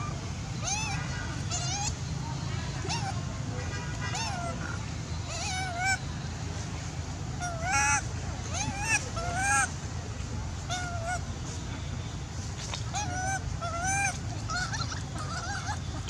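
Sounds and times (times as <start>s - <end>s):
baby monkey crying: 0.0s - 2.0s, 2.8s - 3.2s, 4.1s - 6.0s, 7.4s - 9.7s, 10.7s - 11.2s, 12.9s - 16.0s.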